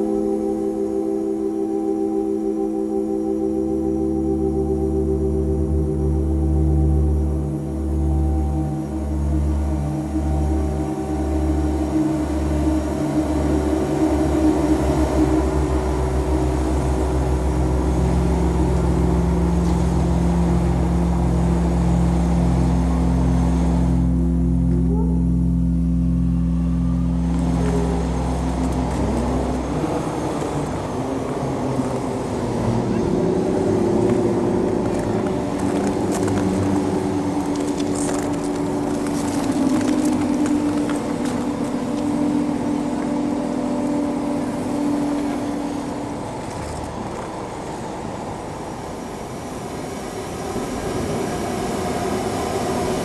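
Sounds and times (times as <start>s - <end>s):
pulsing low tone: 0.0s - 49.0s
fire organ low drone: 0.0s - 53.0s
fire crackling: 34.7s - 43.1s.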